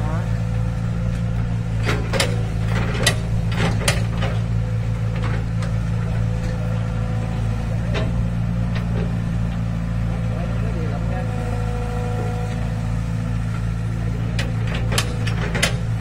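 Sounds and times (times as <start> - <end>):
excavator diesel engine running: 0.0 - 16.0.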